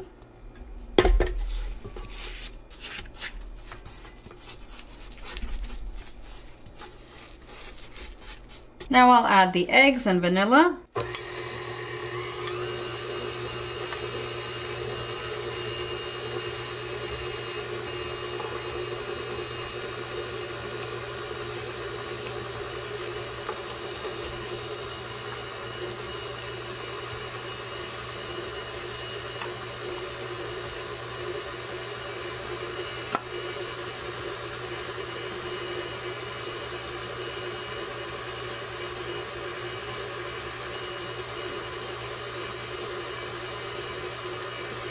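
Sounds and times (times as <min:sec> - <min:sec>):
stand mixer running: 0:11.0 - 0:44.9.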